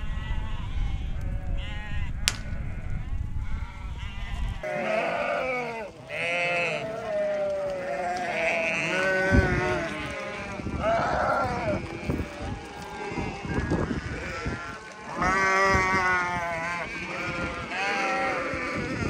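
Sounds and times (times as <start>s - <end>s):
sheep bleating: 3.9s - 19.0s.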